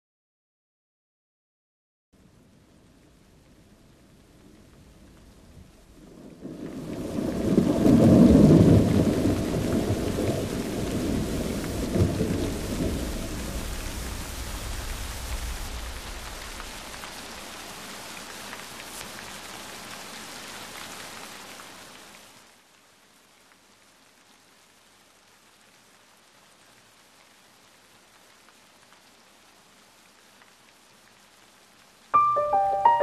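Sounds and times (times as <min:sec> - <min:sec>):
steady rain: 0:02.2 - 0:33.0
rolling thunder: 0:05.6 - 0:17.4.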